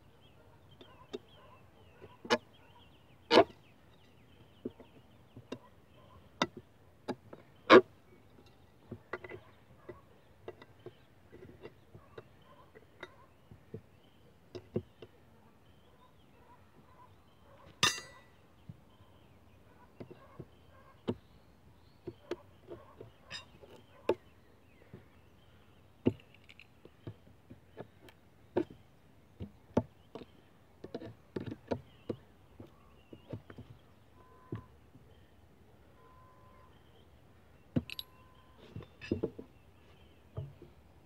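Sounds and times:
ringing metallic clang: 17.8 - 18.3.

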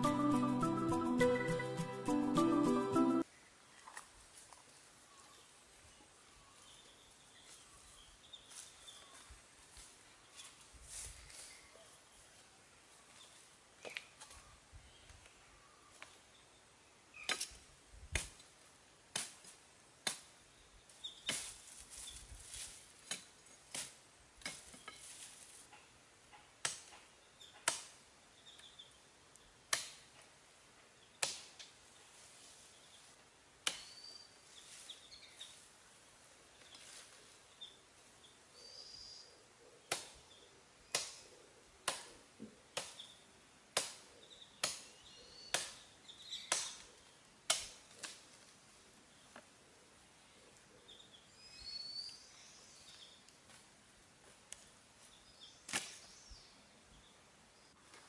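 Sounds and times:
machete chopping wood: 41.8 - 42.1, 43.8 - 44.0.

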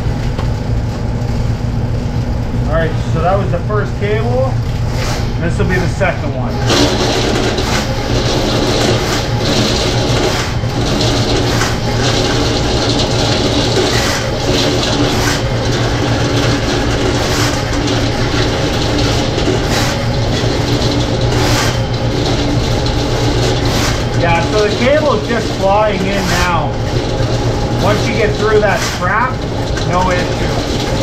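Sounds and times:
drain cleaning machine motor hum: 0.0 - 31.0
cable knocking in drain: 6.7 - 31.0.

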